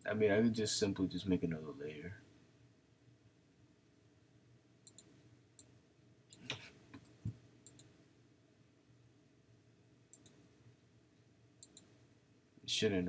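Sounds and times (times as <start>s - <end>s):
computer mouse clicks: 4.8s - 5.7s, 6.3s - 7.9s, 10.1s - 10.4s, 11.6s - 11.9s.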